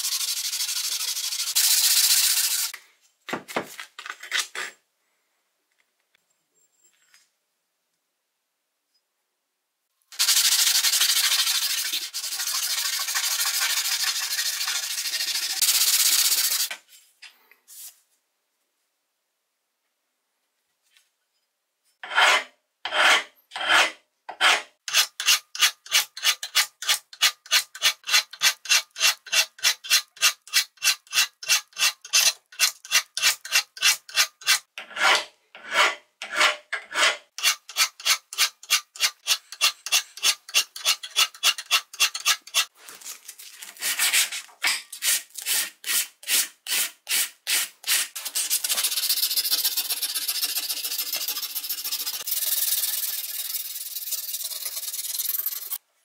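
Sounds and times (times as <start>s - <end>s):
scraping rust off metal: 22.0s - 42.8s.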